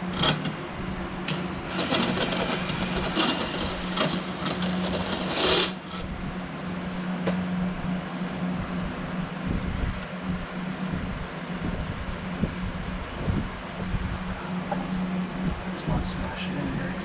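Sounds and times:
steady low hum: 0.0s - 17.0s
power drill chattering: 1.3s - 6.0s.

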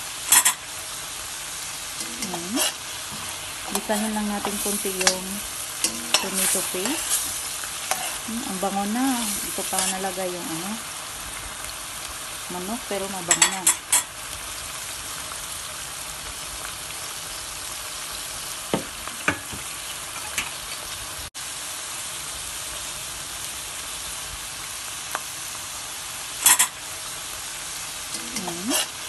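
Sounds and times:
food sizzling in a metal pan: 0.0s - 29.0s
spatula scraping a pan: 0.3s - 0.7s, 2.0s - 10.2s, 26.4s - 26.8s, 28.1s - 29.0s.

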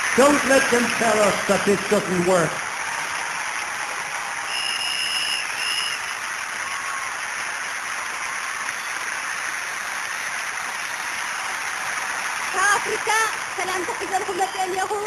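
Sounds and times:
crowd cheering and applauding: 0.0s - 15.0s
shrill whistle: 4.4s - 7.0s.

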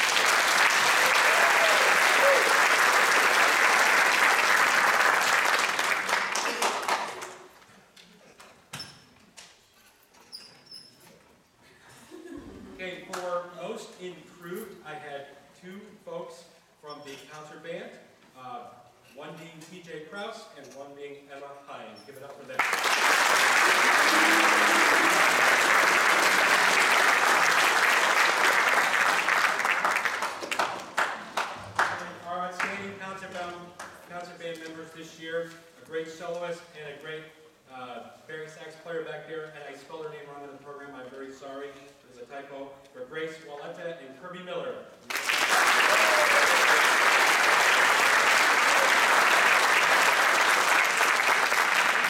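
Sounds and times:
crowd applauding: 0.0s - 7.5s, 22.6s - 32.0s, 45.1s - 52.0s.

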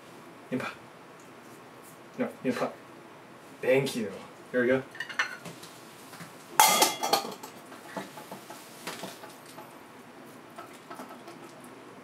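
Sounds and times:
dish clinking as cat eats: 6.6s - 7.6s
dish clattering on floor: 6.6s - 9.7s.

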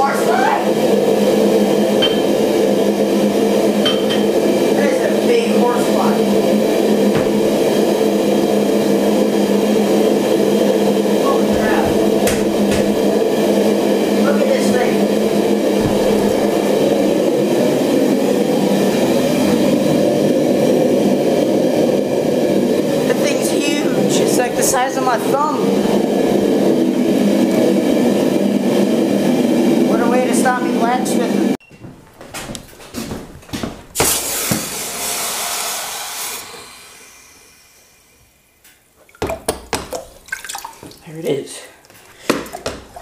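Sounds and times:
low mechanical roar: 0.0s - 31.6s
hot steel quenched hissing: 34.0s - 38.2s.

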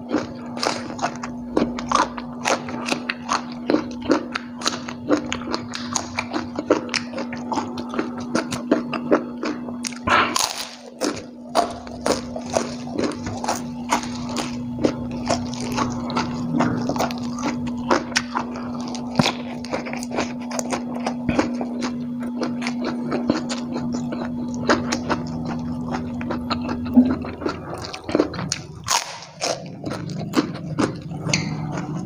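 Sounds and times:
steady low hum: 0.0s - 32.0s
wet chewing and lip smacks: 12.2s - 32.0s.

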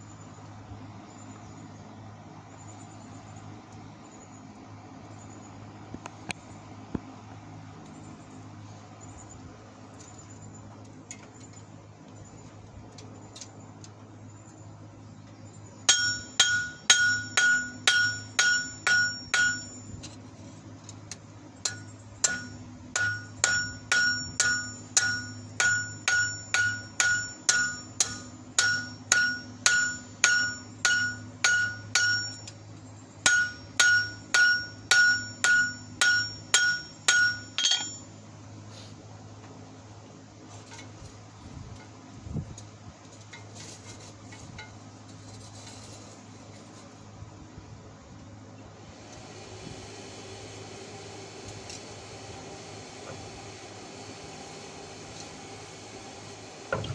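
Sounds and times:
hammer striking steel on anvil: 15.9s - 19.9s, 21.6s - 32.6s, 33.2s - 38.1s.

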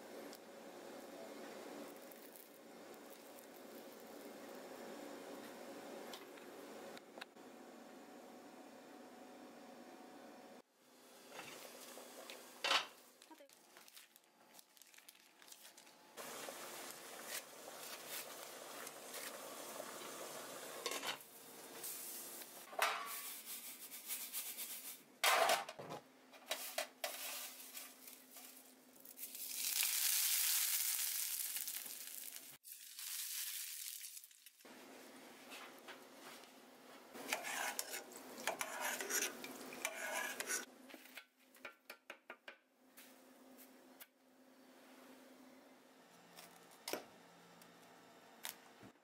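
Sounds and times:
food sizzling in oil: 16.2s - 22.7s, 27.1s - 34.6s.

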